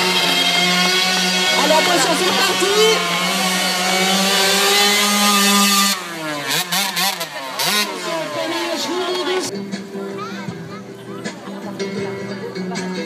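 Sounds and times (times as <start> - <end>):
small motorcycle engine revving: 0.0 - 9.5.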